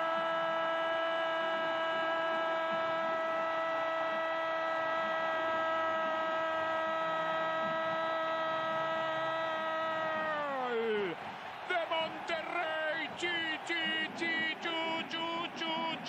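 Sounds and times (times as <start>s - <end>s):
commentator shouting: 10.1s - 16.0s.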